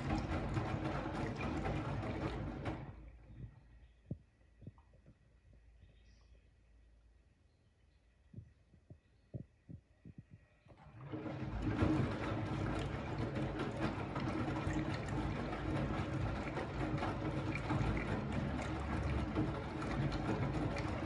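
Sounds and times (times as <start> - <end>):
washing machine drum knocks: 0.0 - 3.0, 11.1 - 21.0
washing machine motor humming: 0.0 - 4.2, 9.3 - 21.0
water sloshing and laundry tumbling: 0.0 - 5.0, 10.2 - 21.0.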